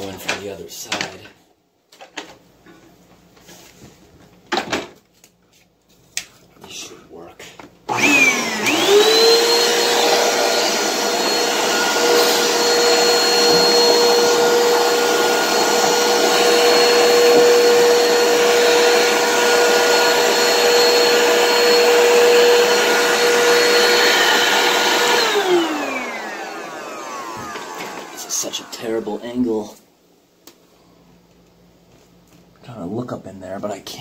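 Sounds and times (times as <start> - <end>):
vacuum motor winding down: 7.9 - 29.2
vacuum cleaner running: 7.9 - 29.8.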